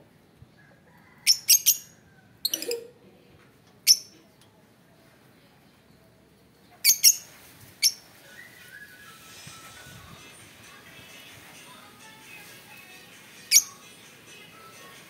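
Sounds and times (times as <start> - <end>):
lovebirds chirping: 6.8 - 8.7.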